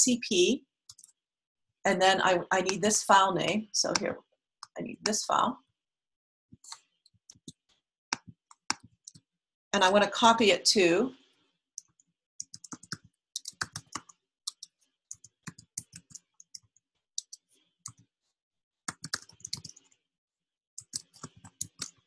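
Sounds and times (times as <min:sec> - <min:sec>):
computer keyboard typing: 0:00.9 - 0:01.2, 0:11.8 - 0:18.0, 0:18.9 - 0:20.0, 0:20.8 - 0:22.0.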